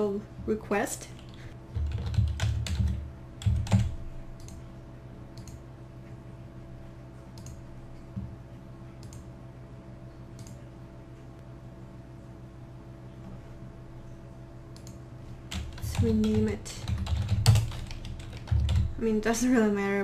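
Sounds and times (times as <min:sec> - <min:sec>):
low steady hum: 0:00.0 - 0:20.0
typing on computer keyboard: 0:01.2 - 0:04.6, 0:14.8 - 0:19.0
faint mouse clicks: 0:10.4 - 0:10.6.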